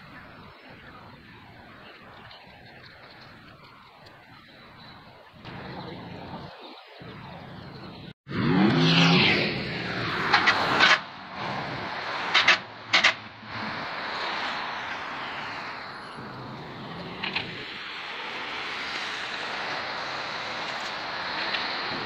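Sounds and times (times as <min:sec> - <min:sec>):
road traffic passing: 0:00.0 - 0:22.0
loud vehicle passing: 0:08.3 - 0:22.0.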